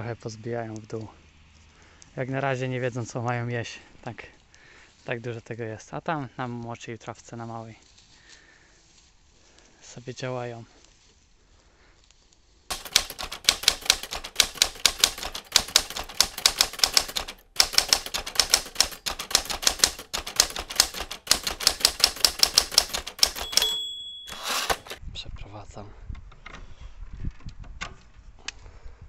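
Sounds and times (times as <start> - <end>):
typewriter carriage bell ding: 12.7 - 25.0
typewriter carriage return rasp: 12.7 - 25.0
typewriter keys clattering: 12.7 - 25.0.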